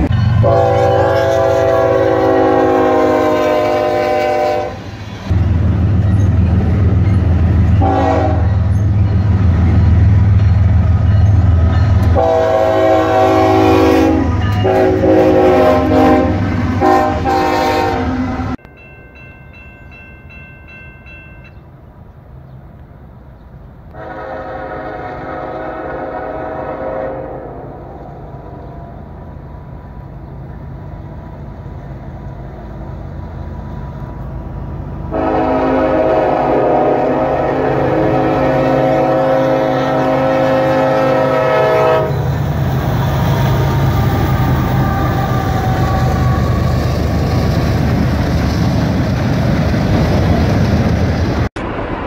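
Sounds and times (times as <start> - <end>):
crossing bell ringing: 0.0 - 1.8, 6.0 - 12.4, 14.1 - 15.7, 18.5 - 21.8
distant train horn: 0.0 - 5.4, 7.6 - 9.0, 11.2 - 18.6, 23.9 - 28.7, 35.1 - 47.6
locomotive engines and rolling train: 0.0 - 52.0
locomotive air horn blasts: 0.4 - 4.9, 7.8 - 8.6, 12.1 - 18.6, 23.9 - 27.7, 35.1 - 42.3.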